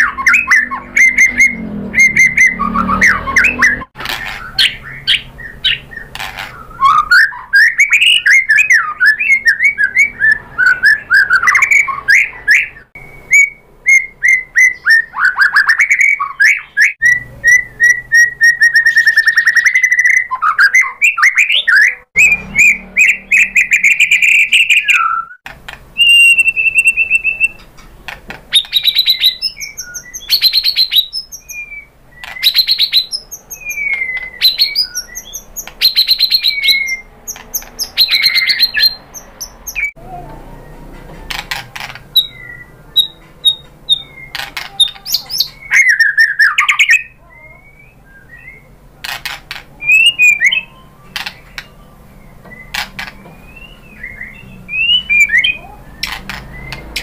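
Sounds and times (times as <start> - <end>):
bird singing whistles and trills: 0.0 - 25.4, 26.0 - 27.7, 28.5 - 48.8, 49.8 - 57.0.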